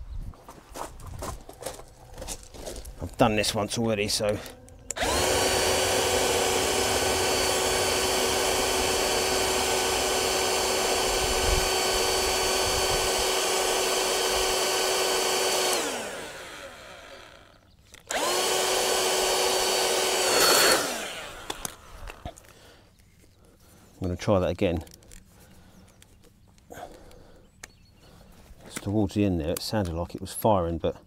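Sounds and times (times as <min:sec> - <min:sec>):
cordless blower whining: 0:03.1 - 0:22.7.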